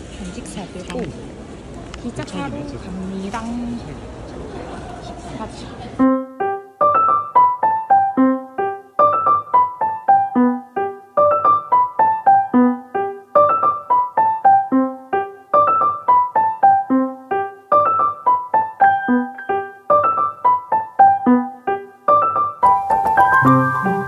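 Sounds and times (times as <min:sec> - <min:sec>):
piano playing repeating phrase: 0:06.0 - 0:24.0.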